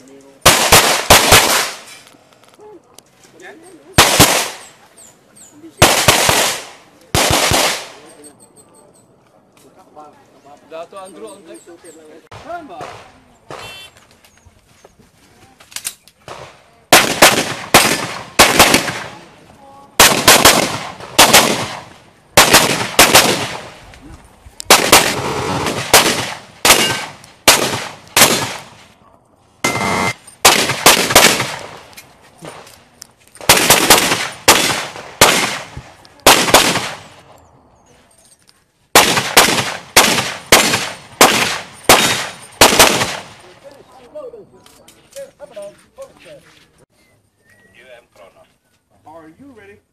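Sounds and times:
pistol shots: 0.4 - 1.9, 4.0 - 4.7, 5.8 - 8.1, 16.3 - 19.3, 20.0 - 23.8, 24.7 - 28.9, 29.6 - 31.9, 33.4 - 37.3, 38.9 - 43.4.

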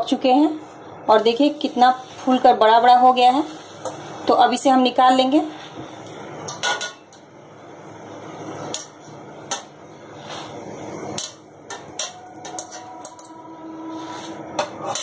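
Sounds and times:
metal spoon clinking on a pan: 11.2 - 13.4.

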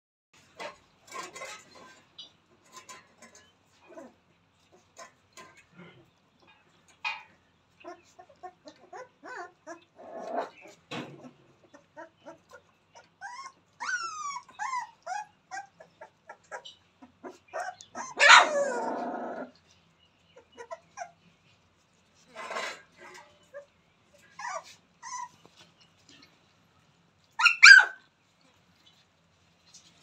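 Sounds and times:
puppies whimpering and yelping: 7.8 - 19.6, 20.4 - 21.4, 22.4 - 25.8, 27.4 - 28.1.

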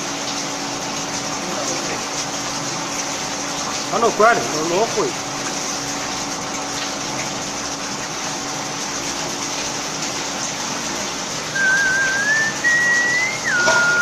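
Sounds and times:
liquid splashing into trough: 5.1 - 14.0
wavering whistled note: 11.6 - 14.0.

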